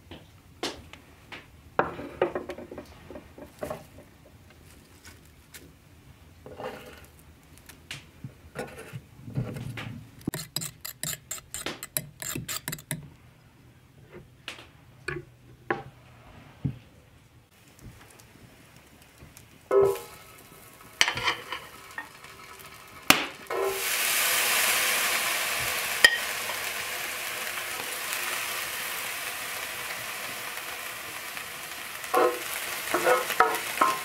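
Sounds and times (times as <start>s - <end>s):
fork beating eggs in bowl: 10.3s - 13.0s
cutlery clinking against bowl: 32.2s - 34.0s.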